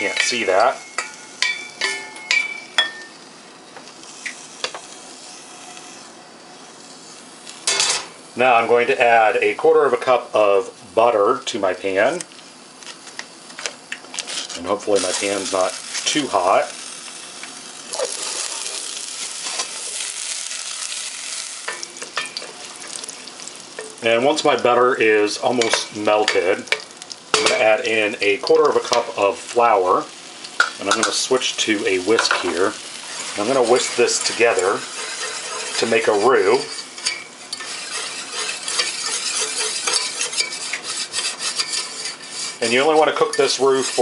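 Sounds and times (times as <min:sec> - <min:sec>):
utensil scraping metal saucepan: 0:00.0 - 0:03.2, 0:14.2 - 0:16.8, 0:17.9 - 0:44.0
low hiss: 0:00.0 - 0:44.0.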